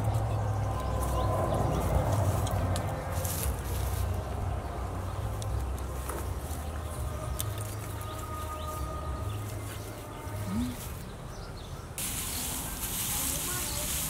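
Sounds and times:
steady low rumble: 0:00.0 - 0:08.1
bright hiss: 0:12.0 - 0:14.0.

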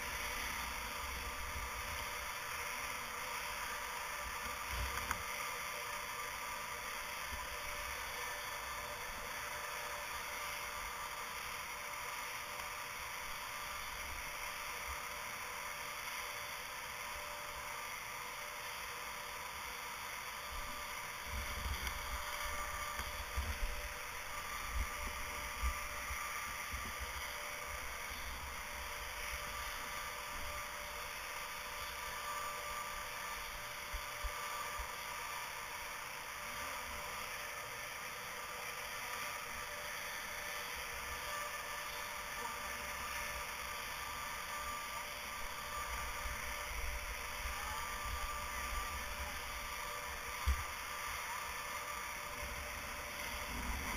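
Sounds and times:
faint mechanical whine: 0:00.0 - 0:53.9
steady hiss: 0:00.0 - 0:53.9.

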